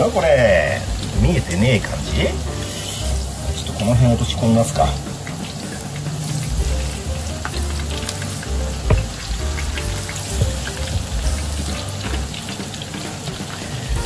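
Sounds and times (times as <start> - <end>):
oil sizzling and bubbling: 0.0 - 14.0
sharp oil pops: 8.8 - 11.0.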